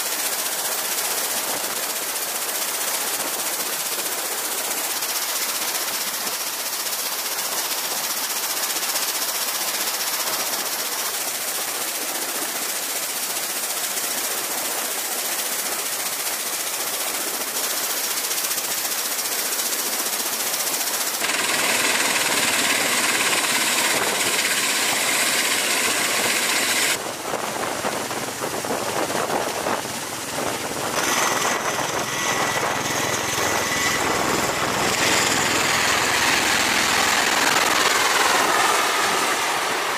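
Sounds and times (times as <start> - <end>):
aircraft turbine engines and rotors: 0.0 - 39.9
steady high whine: 21.1 - 39.9.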